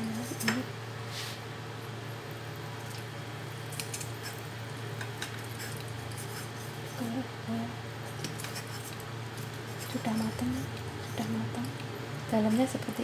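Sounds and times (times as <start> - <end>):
knife scraping ceramic bowl: 3.8 - 4.4, 5.0 - 7.1, 8.1 - 9.0, 9.6 - 11.4.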